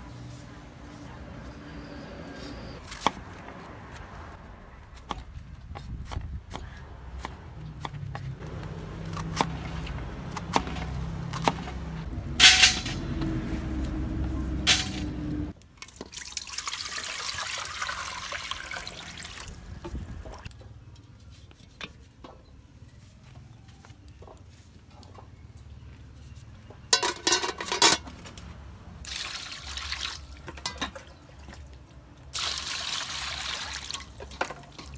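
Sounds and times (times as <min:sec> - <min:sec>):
water running and splashing: 0:16.1 - 0:19.6, 0:32.3 - 0:34.9.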